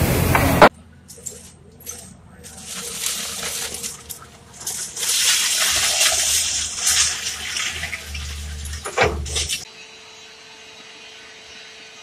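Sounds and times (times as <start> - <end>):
excavator engine humming: 0.0 - 9.7
dry branches crackling: 1.4 - 9.6.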